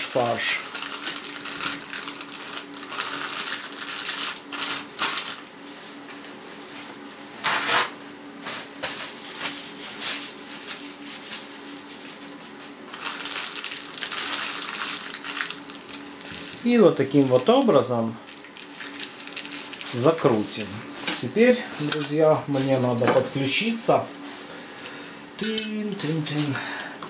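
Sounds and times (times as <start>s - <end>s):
plastic bag crinkling: 0.0s - 5.5s, 12.9s - 22.2s
faint steady hum: 0.0s - 27.0s.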